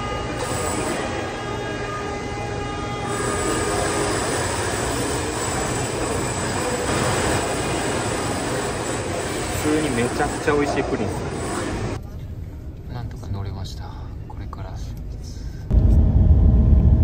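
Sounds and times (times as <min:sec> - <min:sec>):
loud construction noise: 0:00.0 - 0:12.0.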